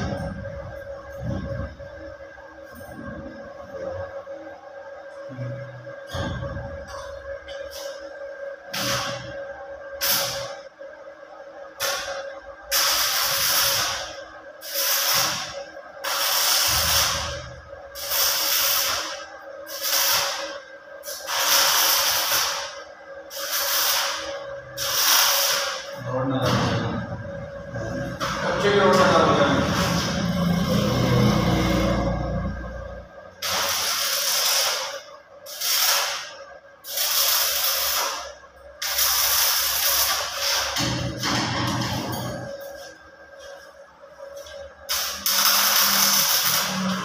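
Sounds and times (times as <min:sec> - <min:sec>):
welding arc crackling and hissing: 0:08.7 - 0:09.4, 0:10.0 - 0:10.6, 0:11.7 - 0:26.9, 0:28.0 - 0:43.7, 0:44.4 - 0:47.0.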